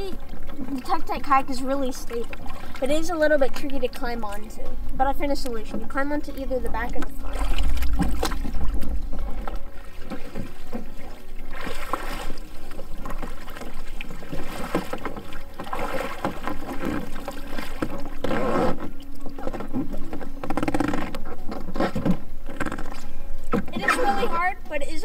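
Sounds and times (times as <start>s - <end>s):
water splashing and sloshing: 0.0s - 25.0s
kayak hull knocking and rubbing: 6.7s - 24.2s.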